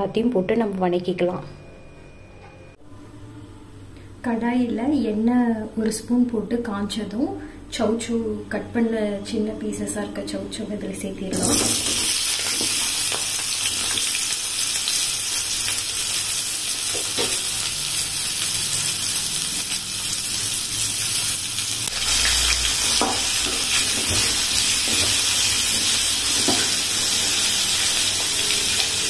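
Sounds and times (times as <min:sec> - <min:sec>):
vegetables sizzling in hot oil: 0:11.4 - 0:29.0.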